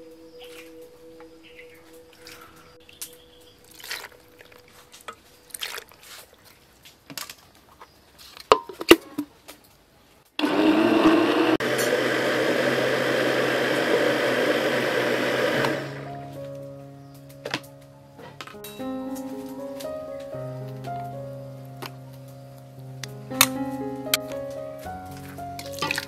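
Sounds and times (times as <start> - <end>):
electric blender running: 10.4 - 16.1.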